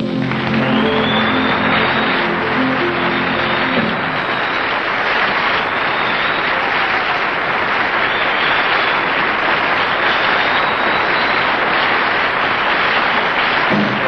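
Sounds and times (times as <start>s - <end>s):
band playing: 0.0s - 5.2s
audience applauding: 0.0s - 14.0s.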